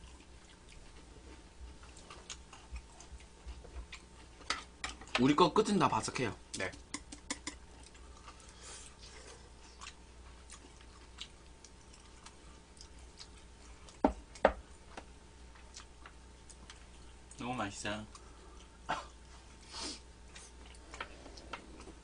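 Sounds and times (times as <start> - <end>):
faint chewing: 0.0 - 5.2, 6.5 - 17.4, 18.0 - 19.6, 20.2 - 22.0
chopsticks clicking on dishes: 6.6 - 7.6.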